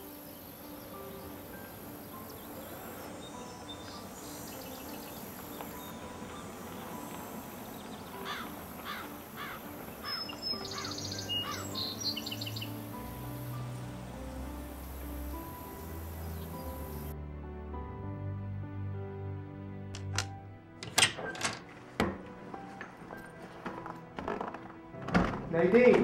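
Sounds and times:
birds calling: 0.0 - 17.1
soft background music: 0.0 - 26.0.

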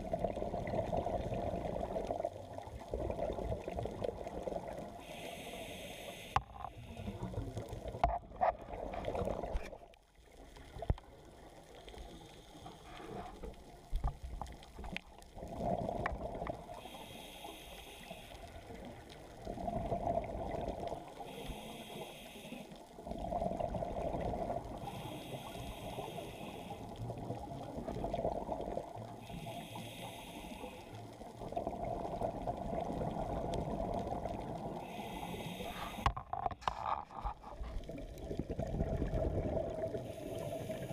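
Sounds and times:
regulator hiss: 5.0 - 7.2, 16.8 - 18.7, 21.1 - 22.8, 24.8 - 26.9, 29.2 - 31.0, 34.7 - 36.1, 40.0 - 40.9
diver exhaling bubbles: 15.4 - 16.8, 31.4 - 40.9.

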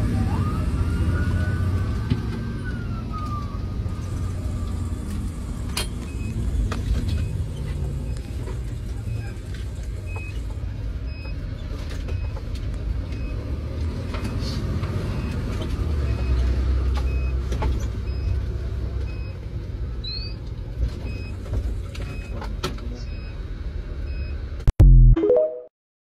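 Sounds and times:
engine and road rumble: 0.0 - 24.8
short high beep: 25.1 - 25.7.

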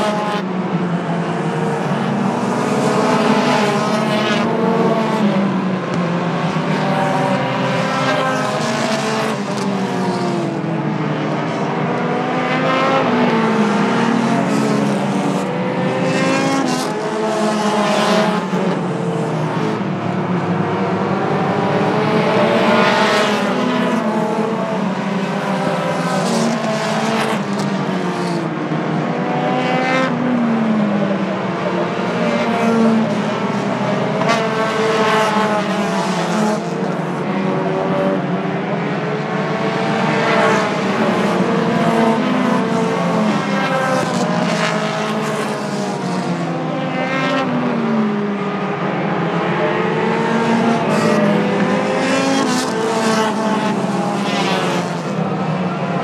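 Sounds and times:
race car engines passing: 0.0 - 56.0.

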